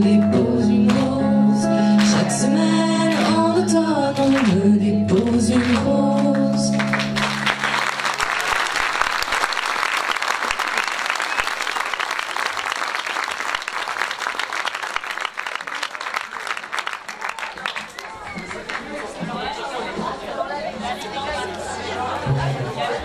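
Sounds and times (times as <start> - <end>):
girls singing: 0.0 - 7.0
guitar accompaniment: 0.0 - 8.3
audience applauding: 6.5 - 19.5.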